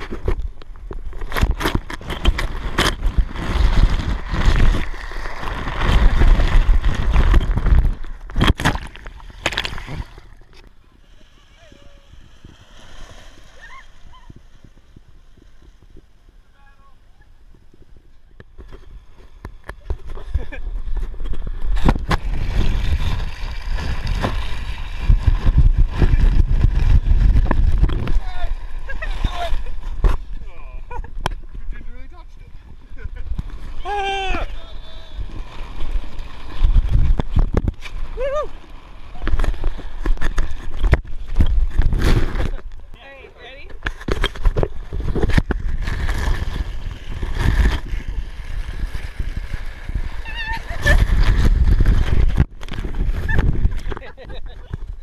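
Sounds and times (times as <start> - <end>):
water splashing and rushing: 0.0 - 16.6, 18.5 - 31.6, 32.6 - 43.0, 43.8 - 55.0
sliding on wet plastic sheet: 1.0 - 10.6, 44.2 - 55.0
wind buffeting microphone: 10.8 - 19.0, 19.8 - 31.8, 44.0 - 55.0.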